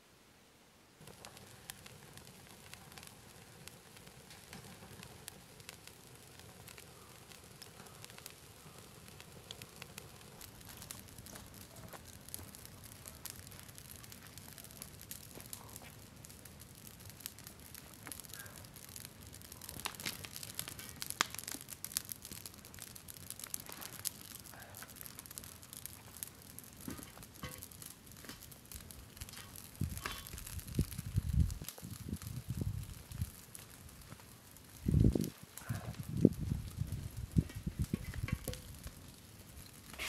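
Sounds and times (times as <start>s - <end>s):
wood fire crackling and popping: 1.0s - 40.0s.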